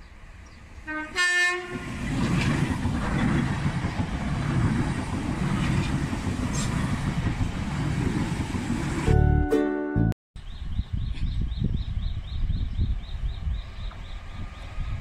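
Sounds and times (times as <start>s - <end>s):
train rumbling past: 0.0s - 9.4s, 12.4s - 15.0s
two-tone train horn blast: 0.8s - 2.0s
wheels clattering over rail joints: 2.0s - 9.0s.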